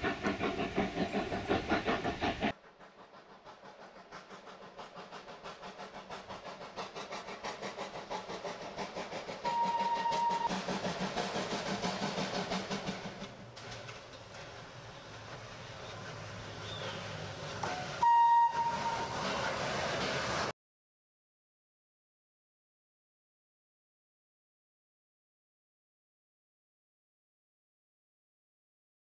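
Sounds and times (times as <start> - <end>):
steam locomotive chuffing: 0.0 - 20.5
steam whistle blast: 9.4 - 10.5, 17.7 - 19.3.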